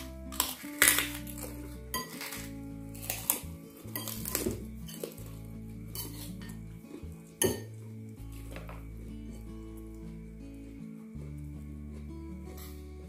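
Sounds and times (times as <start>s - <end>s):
background music: 0.0s - 13.0s
spoons clinking against bowls: 0.3s - 5.3s, 5.9s - 6.6s, 7.4s - 7.7s.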